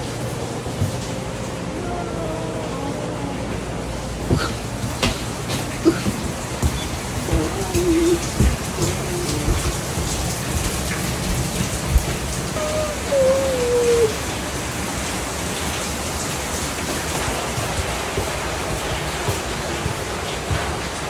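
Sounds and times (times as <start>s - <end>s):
steady rain hiss: 0.0s - 21.0s
footsteps thumping: 4.3s - 10.2s.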